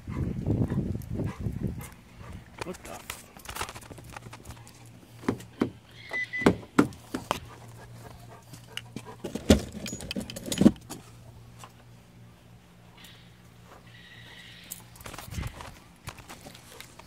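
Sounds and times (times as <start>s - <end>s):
rummaging clicks and jangling: 8.6s - 11.1s.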